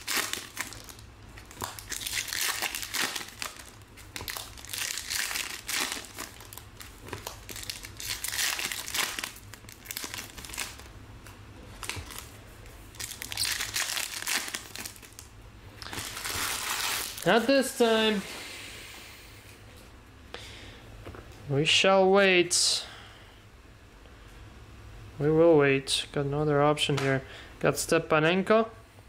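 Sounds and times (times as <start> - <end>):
foil wrappers crinkling: 0.0 - 10.9, 11.7 - 18.2
cards rustling: 0.0 - 15.2.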